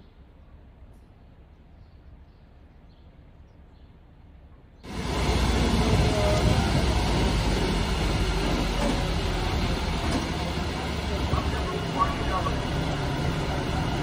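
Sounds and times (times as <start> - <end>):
diesel truck engine running: 4.8 - 14.0
loud rushing noise: 4.9 - 14.0.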